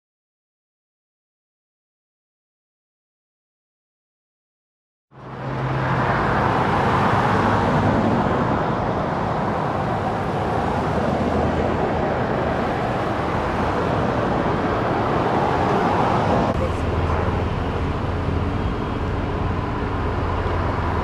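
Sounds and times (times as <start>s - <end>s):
cars passing: 5.1s - 21.0s
tyre and road noise: 5.1s - 21.0s.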